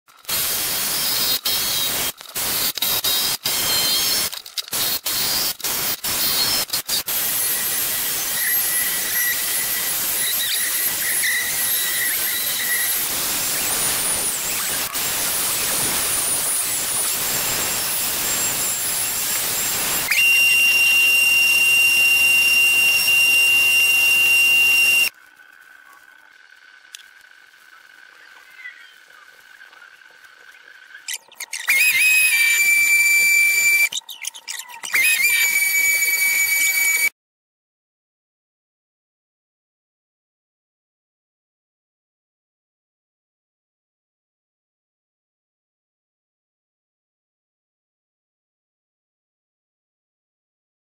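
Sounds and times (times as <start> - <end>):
power tool hissing and whining: 0.2 - 25.1, 31.6 - 34.0, 34.8 - 37.1
loud power tool whine: 2.6 - 25.1, 31.7 - 34.0, 34.9 - 37.1.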